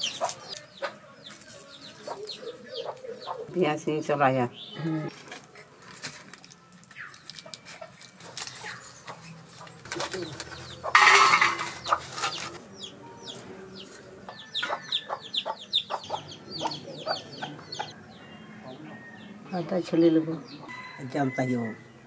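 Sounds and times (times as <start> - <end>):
chicks peeping: 0.0 - 3.5, 7.1 - 10.9, 11.8 - 18.0
hen clucking: 9.6 - 12.9, 14.3 - 18.0.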